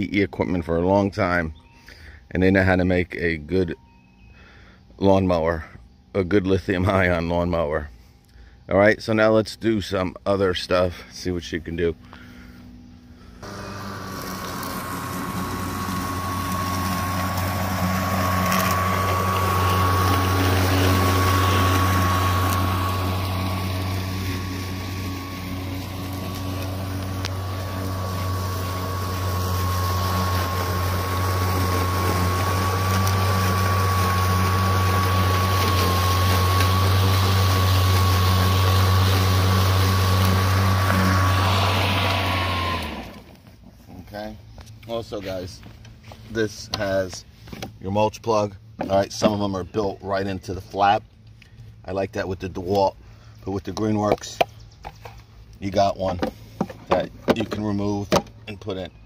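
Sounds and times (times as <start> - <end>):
lawn mower motor running: 10.5 - 59.0
blade cutting grass: 13.3 - 44.2.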